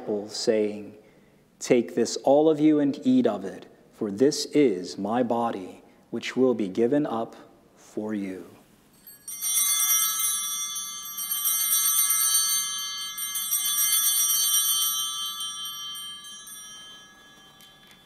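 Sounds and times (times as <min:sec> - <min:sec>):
small bells shaken: 0:08.9 - 0:18.0.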